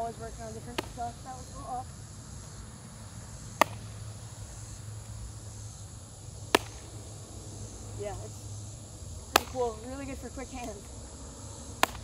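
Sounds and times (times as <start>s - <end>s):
baseball smacking into glove: 0.7s - 1.0s, 3.5s - 5.2s, 6.5s - 7.0s, 9.3s - 9.7s, 11.8s - 12.0s.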